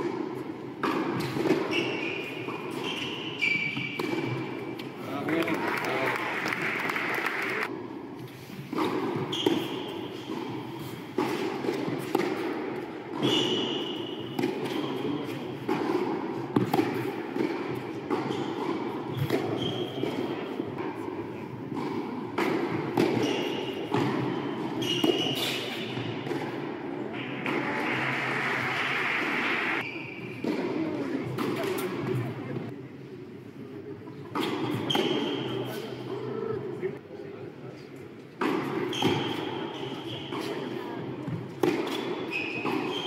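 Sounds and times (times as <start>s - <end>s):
tennis racket hitting ball: 0.0s - 4.9s, 8.7s - 32.2s, 38.4s - 43.0s
shoe squeaks on hard court: 1.2s - 4.4s, 9.2s - 11.1s, 13.2s - 15.3s, 18.2s - 20.4s, 23.2s - 26.1s, 29.8s - 30.4s, 34.4s - 35.8s, 38.9s - 40.7s, 41.8s - 43.0s
murmur of spectators: 4.0s - 7.7s, 25.8s - 43.0s.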